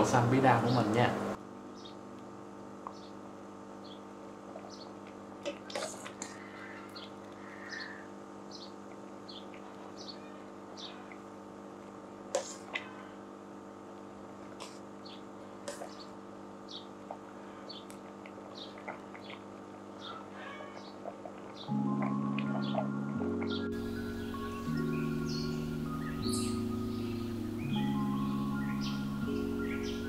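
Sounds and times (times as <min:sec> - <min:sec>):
steady low hum: 0:00.0 - 0:30.0
small birds chirping: 0:01.7 - 0:02.0, 0:02.9 - 0:05.0, 0:05.7 - 0:11.3, 0:15.0 - 0:30.0.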